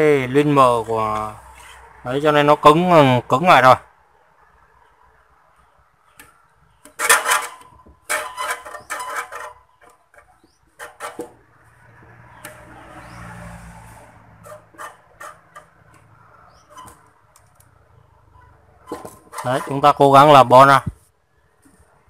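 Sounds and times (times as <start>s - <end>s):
soft scraping: 0.6s - 2.0s, 18.4s - 20.2s.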